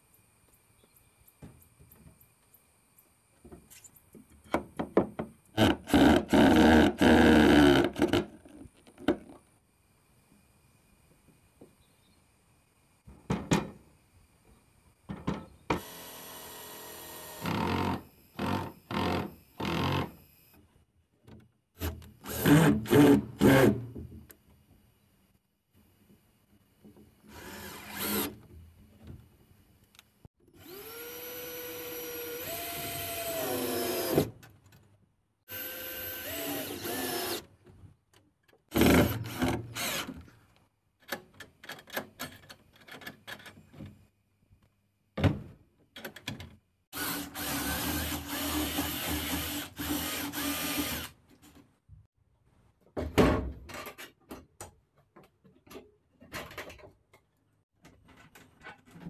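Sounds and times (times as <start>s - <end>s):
cordless drill whining: 30.6s - 34.2s, 35.5s - 37.4s, 47.0s - 51.1s.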